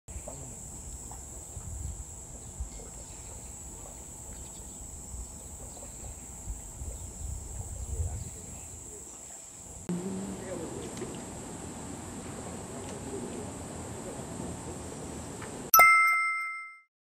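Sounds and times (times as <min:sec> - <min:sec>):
crickets trilling: 0:00.1 - 0:12.8.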